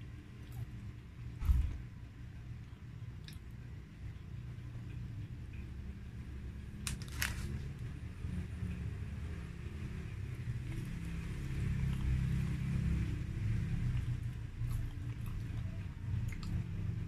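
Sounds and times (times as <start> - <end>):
soft chewing clicks: 2.5 - 5.7, 13.8 - 16.8.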